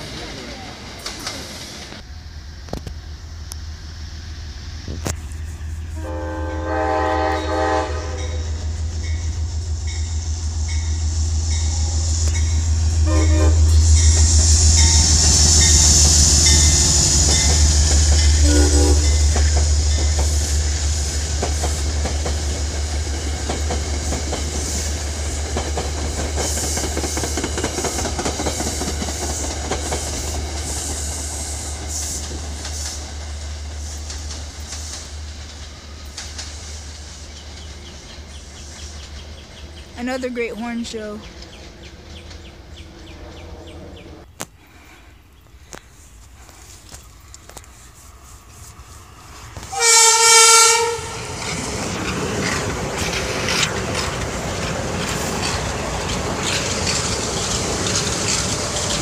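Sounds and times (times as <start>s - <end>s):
train wheels clattering on rails: 0.0s - 3.6s, 7.2s - 43.4s, 49.2s - 59.0s
low train drone: 0.0s - 59.0s
train horn blasts: 5.9s - 9.2s, 11.6s - 14.1s, 18.4s - 19.4s, 49.6s - 51.5s.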